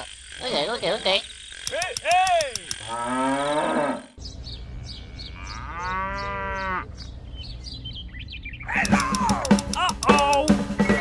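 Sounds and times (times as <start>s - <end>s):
birds chirping: 0.0s - 11.0s
cow mooing: 2.8s - 6.9s.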